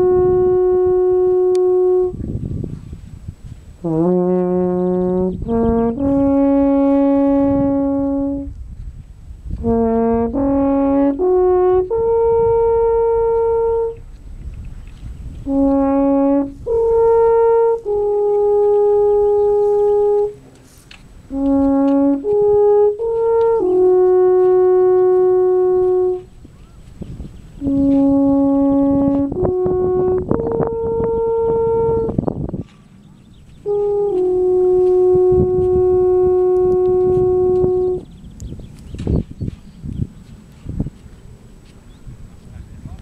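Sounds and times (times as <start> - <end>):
alphorn playing slow melody: 0.0 - 2.2, 3.8 - 8.6, 9.6 - 14.2, 15.4 - 26.4, 27.6 - 32.2, 33.6 - 38.0.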